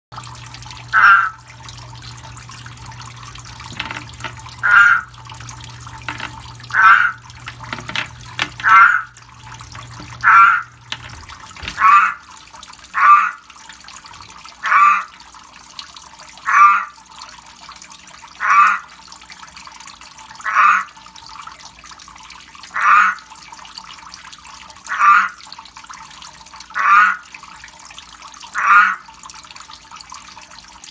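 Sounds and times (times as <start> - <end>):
frog croaking: 0.9 - 1.4, 3.7 - 5.2, 6.0 - 9.2, 9.9 - 12.2, 13.0 - 13.4, 14.6 - 15.1, 16.5 - 16.9, 18.4 - 18.8, 20.4 - 20.9, 22.8 - 23.2, 24.9 - 25.4, 26.8 - 27.2, 28.6 - 29.0.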